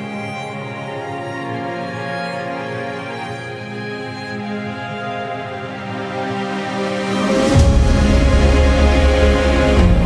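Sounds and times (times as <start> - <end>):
background music with sustained tones: 0.0 - 10.0
deep bass: 7.5 - 10.0.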